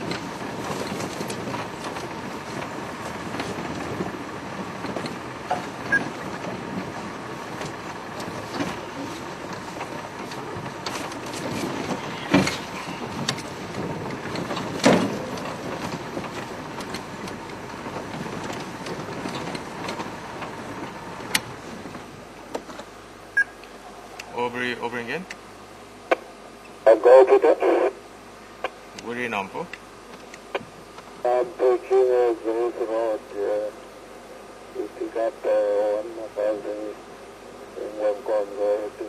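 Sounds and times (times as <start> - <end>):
vehicle jolting knocks: 0.0 - 22.8
vehicle body rattling: 0.0 - 22.9
vehicle engine running: 0.0 - 39.0.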